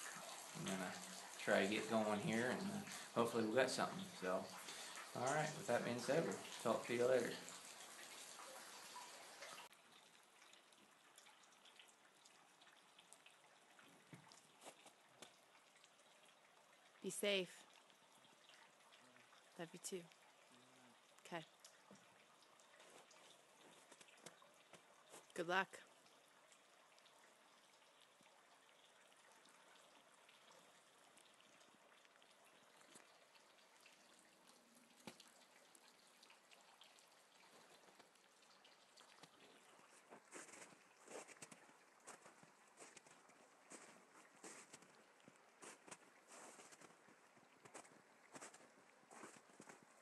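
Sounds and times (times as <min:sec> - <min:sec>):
faint hiss: 0:00.0 - 0:09.5
river water washing: 0:00.0 - 0:09.6
water drips: 0:00.0 - 0:50.0.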